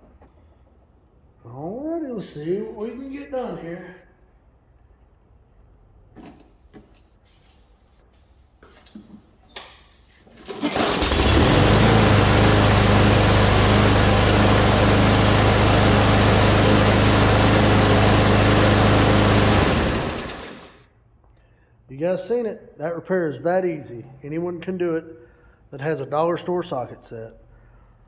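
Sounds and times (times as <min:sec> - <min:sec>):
mower engine running: 0:10.4 - 0:20.8.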